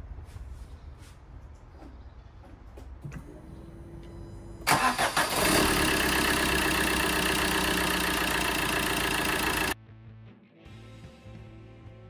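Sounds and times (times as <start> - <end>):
diesel engine starting and idling: 3.1 - 9.8.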